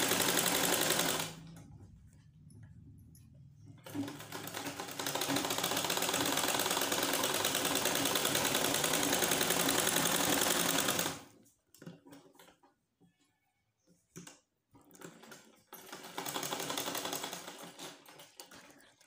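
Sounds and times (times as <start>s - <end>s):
sewing machine stitching: 0.0s - 1.7s, 3.8s - 12.6s, 14.8s - 19.0s.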